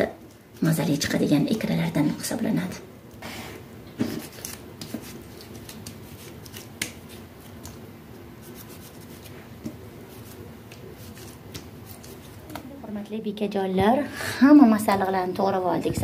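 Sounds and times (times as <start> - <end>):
knife slicing tomatoes: 4.0 - 7.8.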